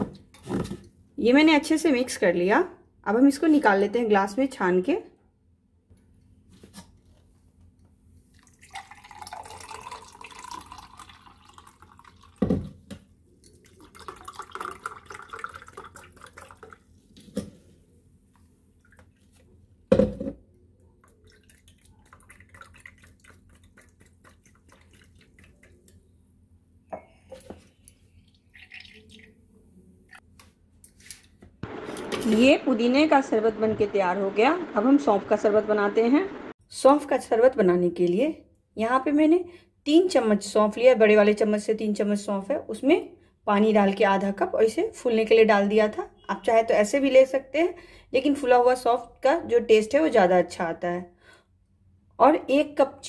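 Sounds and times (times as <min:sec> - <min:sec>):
drink pouring and splashing: 0:08.3 - 0:12.4, 0:13.4 - 0:17.2, 0:21.0 - 0:25.9, 0:27.3 - 0:29.4.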